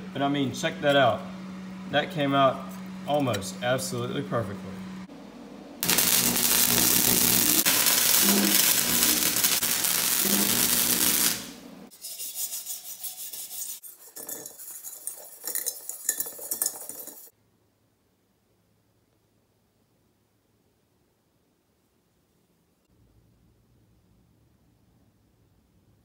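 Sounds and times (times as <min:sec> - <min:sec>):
welding arc: 0:05.8 - 0:11.9
metal pipe clinking and rubbing: 0:11.9 - 0:17.3.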